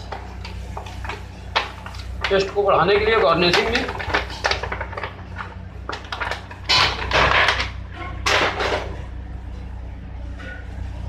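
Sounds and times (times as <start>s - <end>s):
low hum: 3.9s - 11.0s.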